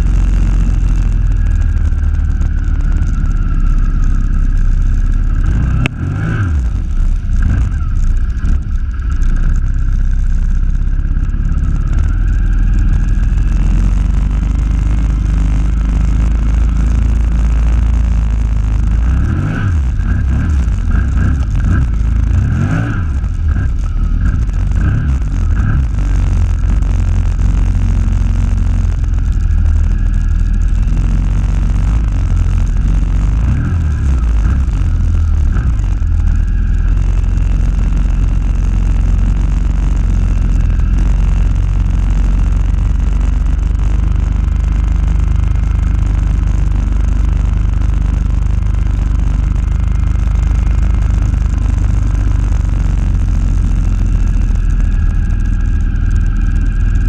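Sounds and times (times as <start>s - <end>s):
quad engine revving: 0.0s - 57.0s.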